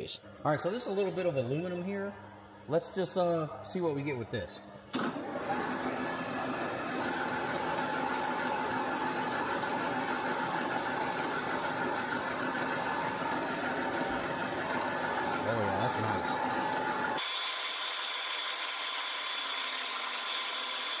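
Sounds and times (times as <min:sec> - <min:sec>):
metal lathe running: 0:05.0 - 0:21.0.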